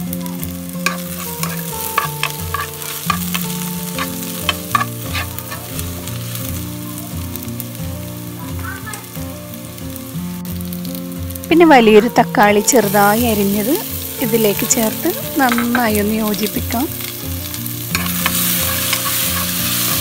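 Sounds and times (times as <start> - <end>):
onions sizzling in hot fat: 0.0 - 20.0
spatula scraping a pan: 0.8 - 6.3, 17.0 - 20.0.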